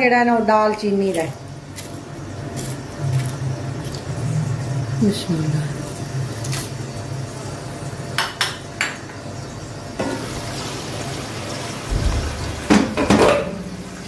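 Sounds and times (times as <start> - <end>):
pots and lid clattering: 12.0 - 13.9
metal kitchenware clinking: 12.7 - 13.8.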